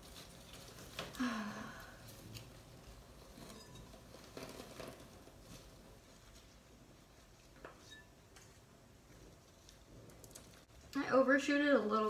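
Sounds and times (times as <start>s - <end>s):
rustling leaves and soil: 0.0s - 7.5s
person sighing: 1.0s - 2.1s.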